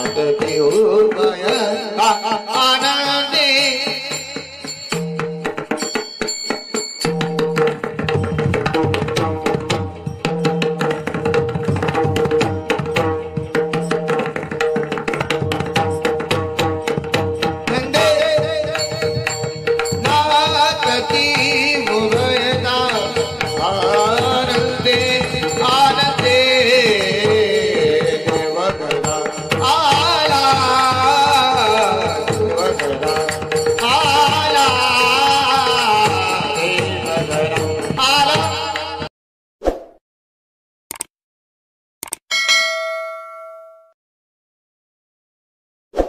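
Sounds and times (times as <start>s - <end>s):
singing voices: 0.0s - 4.9s, 17.7s - 19.4s, 20.0s - 39.1s.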